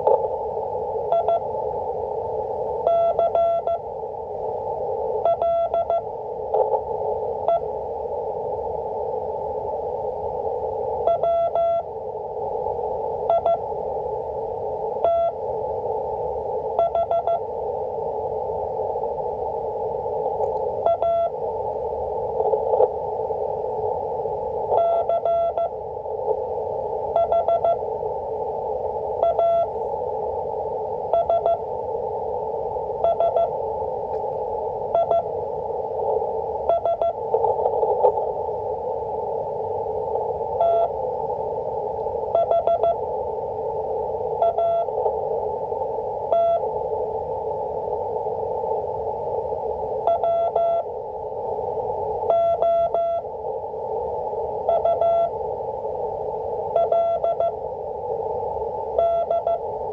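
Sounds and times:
radio band noise hiss: 0.0s - 59.9s
morse code beeps: 1.1s - 1.4s, 2.9s - 3.8s, 5.2s - 6.0s, 11.1s - 11.9s, 13.3s - 13.6s, 15.0s - 15.4s, 16.8s - 17.4s, 20.8s - 21.3s, 24.7s - 25.7s, 27.2s - 27.8s, 29.2s - 29.7s, 31.1s - 31.6s, 33.0s - 33.5s, 35.0s - 35.3s, 36.7s - 37.6s, 40.6s - 40.9s, 42.4s - 43.0s, 44.4s - 44.9s, 46.3s - 46.6s, 50.1s - 50.9s, 52.3s - 53.2s, 54.7s - 55.3s, 56.8s - 57.6s, 59.0s - 59.6s.

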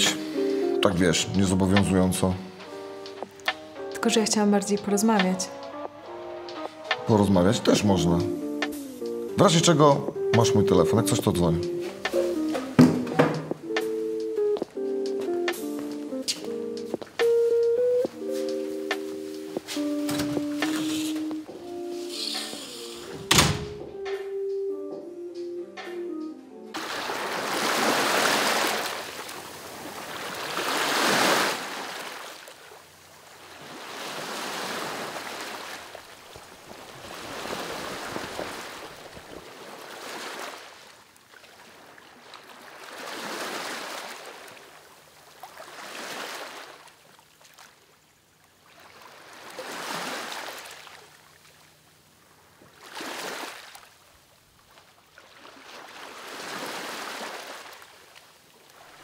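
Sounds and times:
small waves breaking on beach: 26.8s - 59.0s.

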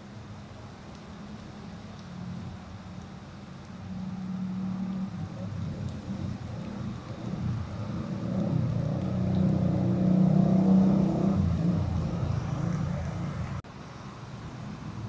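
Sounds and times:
tyre hiss on wet road: 0.0s - 15.0s
bus engine passing: 3.9s - 13.6s
motorcycles: 3.9s - 13.6s.

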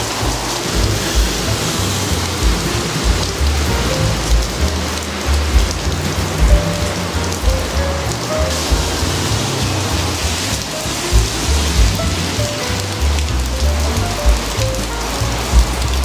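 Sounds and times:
background music: 0.0s - 16.0s
rain falling on asphalt: 0.0s - 16.0s.

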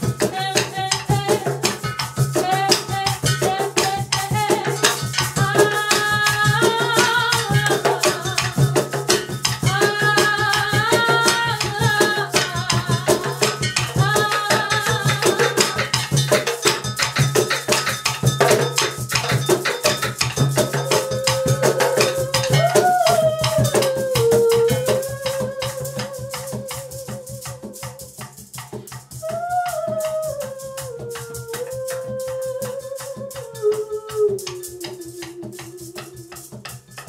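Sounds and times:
hand percussion jam: 0.0s - 37.0s
held wavering melodic note: 20.6s - 27.6s.

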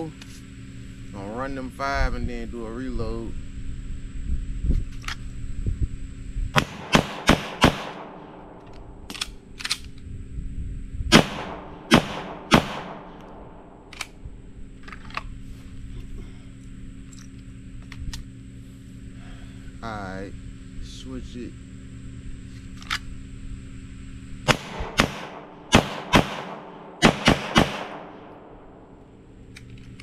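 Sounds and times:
pistol shots: 6.6s - 8.6s, 11.1s - 13.9s, 24.4s - 28.9s.

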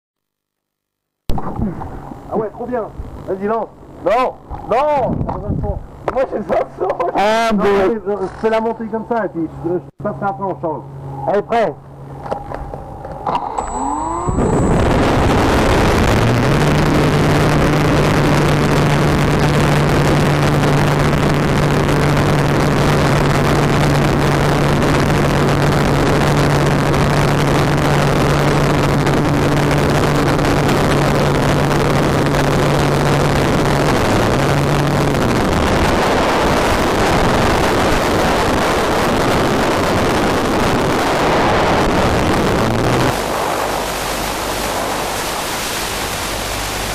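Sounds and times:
low motor drone: 1.3s - 46.9s
model airplane motor whine: 13.3s - 19.7s
rushing wind noise: 13.6s - 46.2s.

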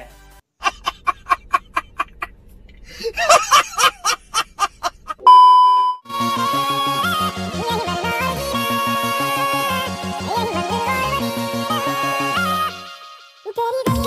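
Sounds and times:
man laughing loudly: 0.6s - 5.3s
bleep tone: 5.3s - 6.1s
upbeat music: 6.1s - 14.0s.

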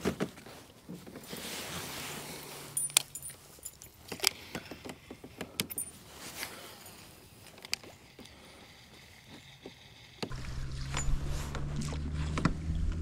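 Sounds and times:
small metallic rattles: 2.7s - 9.9s.

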